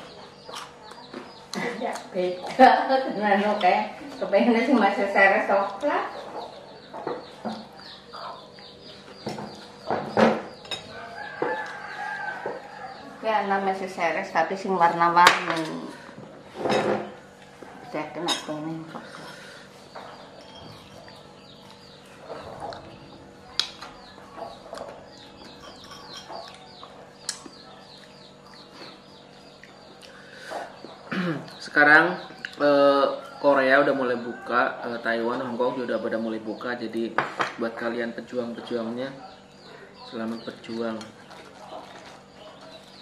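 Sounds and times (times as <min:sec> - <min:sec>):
birds chirping: 0:00.0 - 0:43.0
chickens clucking: 0:00.0 - 0:43.0
metal fork clinking on plate: 0:25.6 - 0:26.6.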